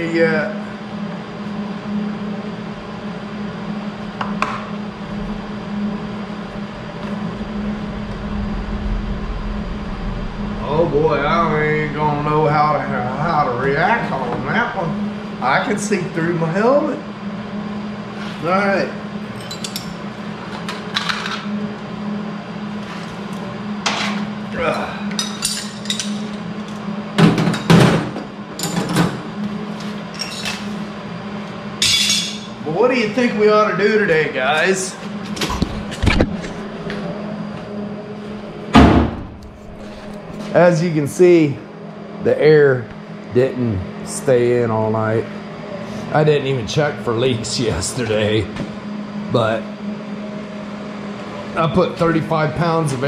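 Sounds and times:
mechanical hum with hiss: 0.0 - 53.0
metal tools clinking on concrete: 19.4 - 19.9, 31.8 - 32.5.

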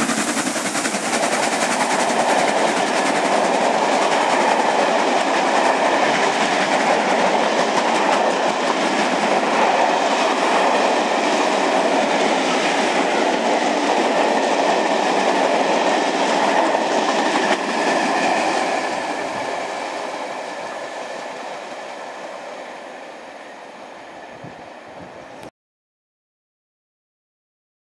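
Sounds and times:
train wheels clattering over rails: 0.0 - 22.0.

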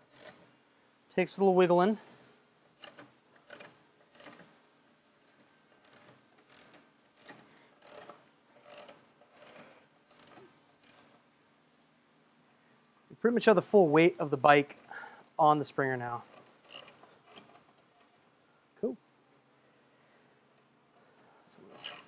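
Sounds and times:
lift ratcheting clicks: 0.0 - 0.4, 2.8 - 4.5, 5.1 - 11.1, 16.3 - 18.2, 21.7 - 22.0.

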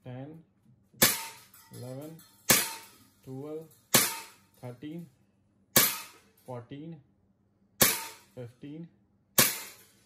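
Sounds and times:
air pistol shots: 1.0 - 1.5, 2.5 - 2.9, 3.9 - 4.4, 5.8 - 6.3, 7.8 - 8.3, 9.4 - 10.0.

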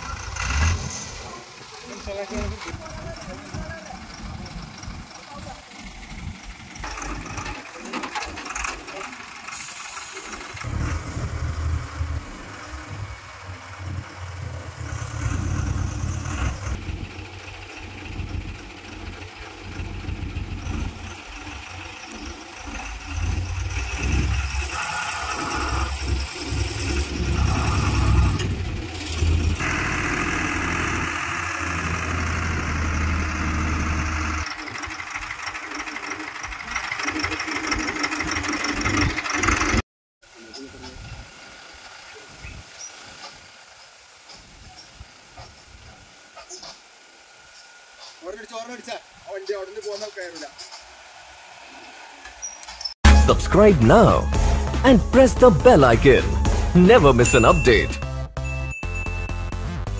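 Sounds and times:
diesel engine revving: 0.0 - 39.8
people talking: 1.8 - 5.7, 53.1 - 58.0.

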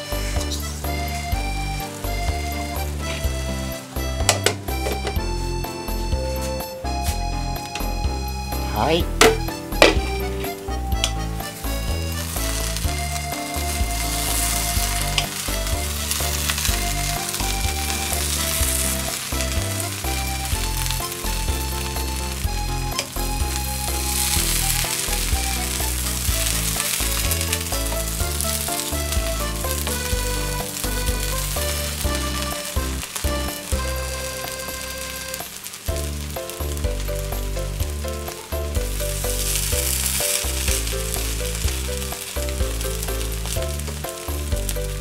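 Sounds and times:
music with pulsing bass: 0.0 - 45.0
rice sizzling in frying pan: 0.0 - 45.0
wooden spatula stirring: 12.2 - 21.2.

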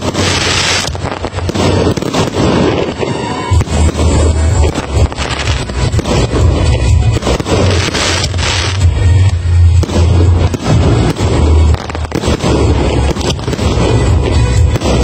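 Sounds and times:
fireworks bangs and crackling: 0.0 - 15.0
loud music with heavy bass: 3.6 - 15.0.

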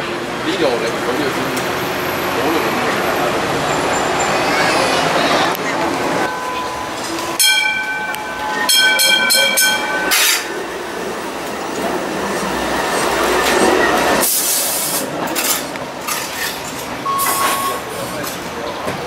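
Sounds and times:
tram rolling on tracks: 0.0 - 19.0
tram warning signal pulses: 5.6 - 14.2, 17.0 - 18.0.

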